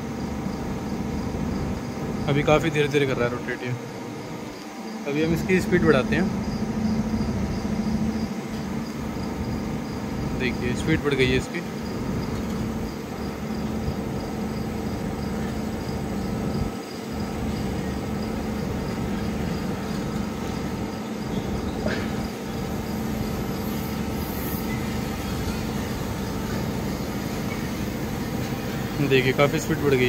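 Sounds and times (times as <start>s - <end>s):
electric gear motor humming: 0.0s - 30.0s.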